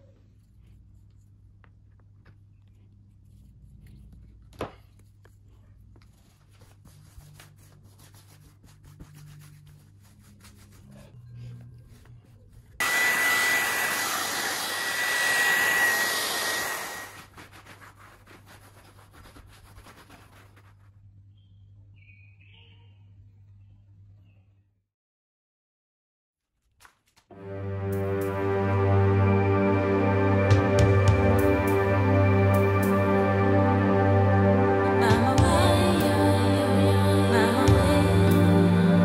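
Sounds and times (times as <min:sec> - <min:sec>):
rubbing on canvas: 0:02.7 - 0:11.2, 0:17.2 - 0:21.2
electric blower whining: 0:12.8 - 0:17.2.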